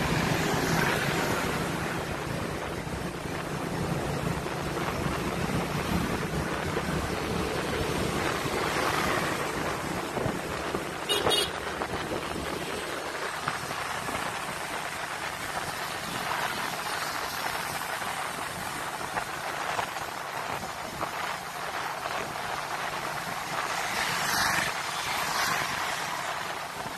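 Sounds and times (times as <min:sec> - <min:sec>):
motorcycle engine and road noise: 0:00.0 - 0:26.9
wind on microphone: 0:00.0 - 0:26.9.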